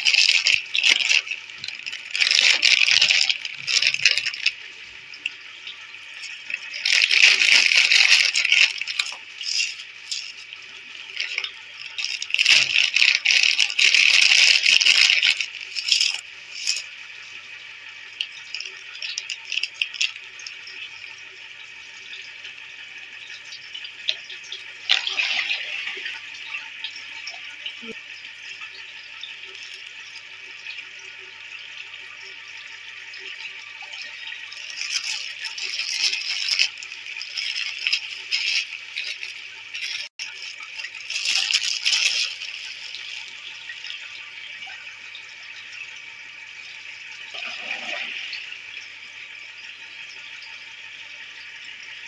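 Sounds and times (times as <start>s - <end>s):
plastic snack packet crinkling: 0.0s - 4.5s, 6.2s - 16.8s, 34.5s - 43.7s
water swirling: 47.3s - 48.6s.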